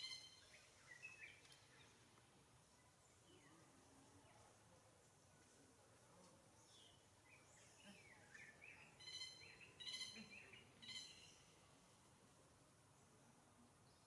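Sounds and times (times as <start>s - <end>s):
faint bird calls: 7.6s - 11.6s.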